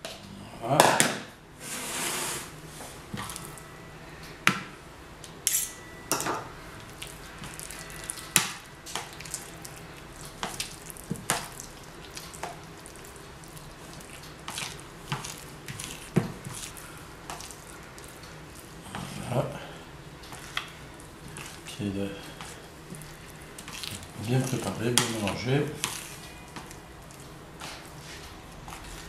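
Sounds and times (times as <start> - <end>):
wet mixture squelching: 6.7 - 29.0.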